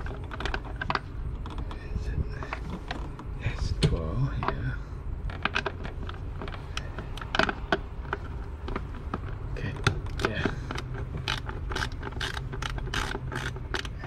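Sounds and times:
socket ratchet clicking: 9.8s - 14.0s.

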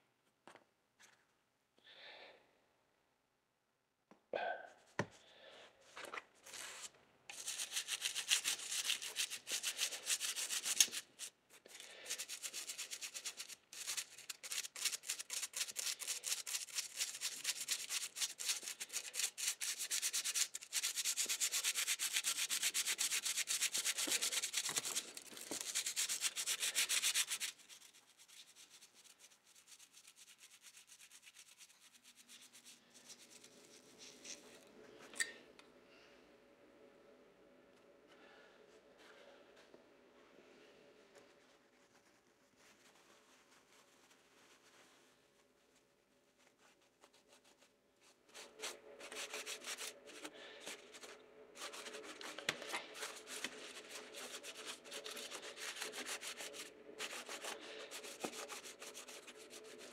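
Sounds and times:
toothbrush scrubbing brass: 7.3s - 34.5s, 48.3s - 59.9s.

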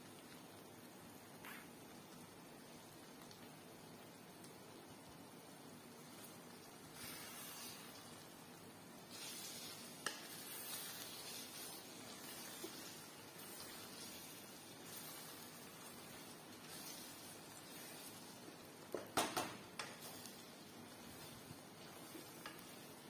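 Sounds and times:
sauce sizzling and bubbling: 0.0s - 23.0s
wooden spatula stirring: 6.0s - 8.4s, 9.0s - 23.0s.

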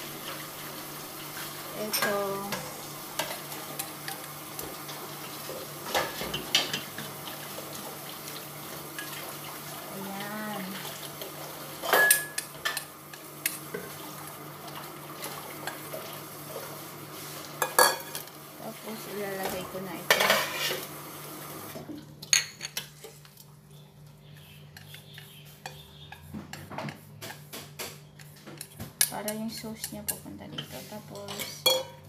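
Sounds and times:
cookware clanking on steel pot: 29.0s - 32.0s.

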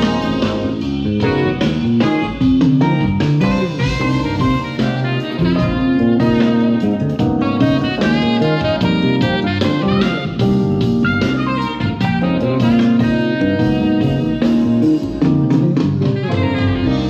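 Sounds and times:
melodic music with strong bass: 0.0s - 17.0s.

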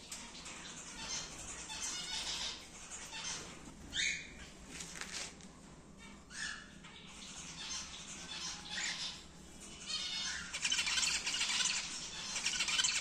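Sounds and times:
cockatiels giving raspy calls: 9.9s - 13.0s.

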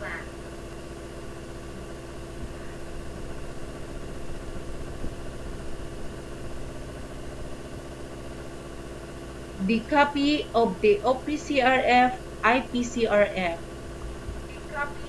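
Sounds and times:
low background drone: 1.4s - 15.0s.

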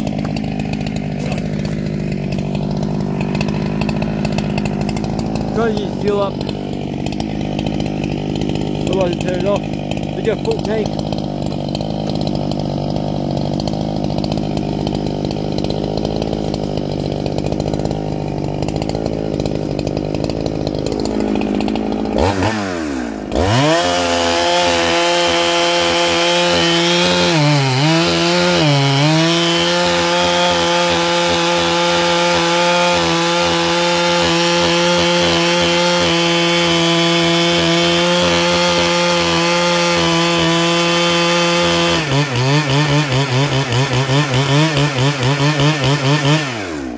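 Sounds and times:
chainsaw engine running: 0.0s - 46.9s.

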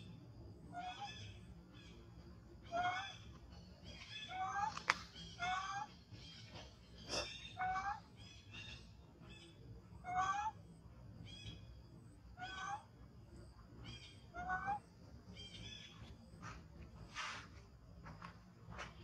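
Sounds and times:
infant monkey coo calls: 0.6s - 2.0s, 2.6s - 3.3s, 4.0s - 6.0s, 7.0s - 10.7s, 12.3s - 13.0s, 13.9s - 14.9s.

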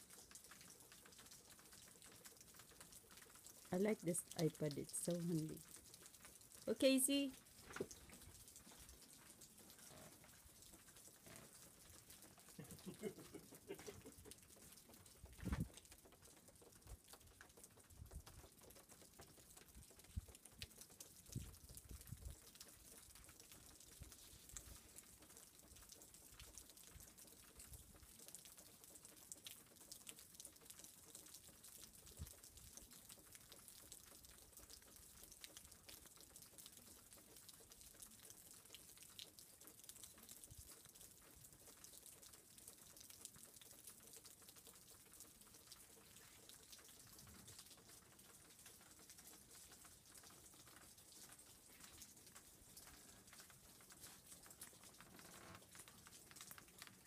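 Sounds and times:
wet snow pattering: 12.4s - 14.4s.

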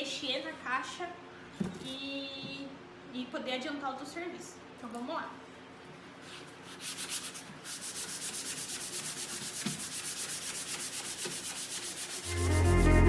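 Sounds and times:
sanding block strokes: 6.3s - 12.4s
music: 12.2s - 13.0s.

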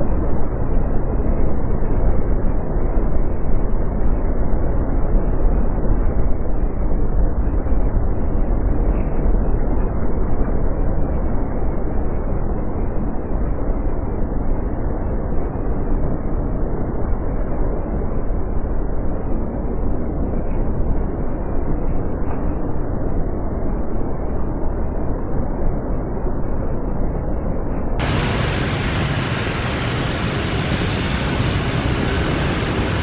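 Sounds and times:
jet engines rumbling: 0.0s - 33.0s.

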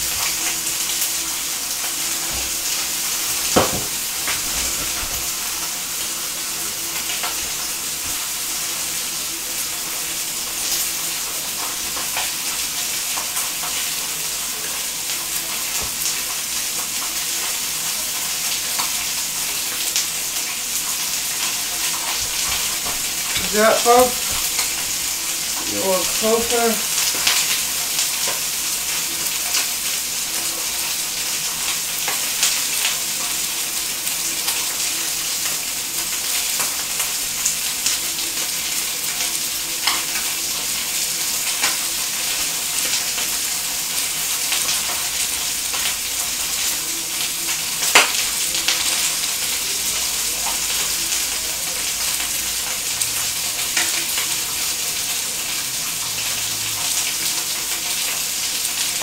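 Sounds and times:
chicken sizzling in a pan: 0.0s - 59.0s
fat crackling and popping: 1.7s - 5.8s, 21.3s - 27.6s, 47.8s - 48.7s.

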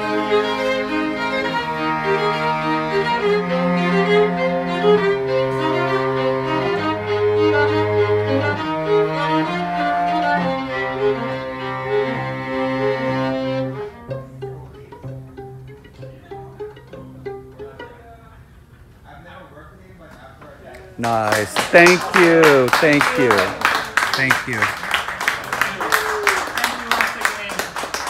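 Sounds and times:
bowed string trio playing: 0.0s - 18.7s, 21.0s - 24.7s.

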